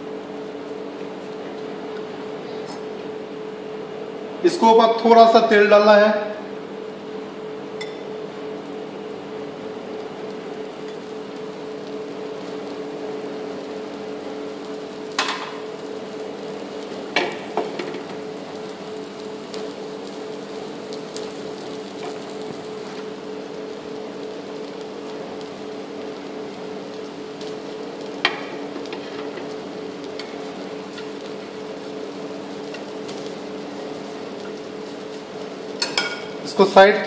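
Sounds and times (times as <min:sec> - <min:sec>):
batter sizzling in oil: 0:07.5 - 0:37.0.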